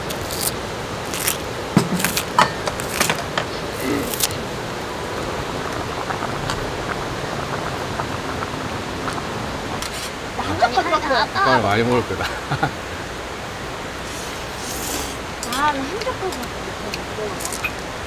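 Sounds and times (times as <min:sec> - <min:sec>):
scissors snipping: 0:00.0 - 0:03.2, 0:03.8 - 0:04.4, 0:16.9 - 0:17.8
creek rushing: 0:00.0 - 0:18.0.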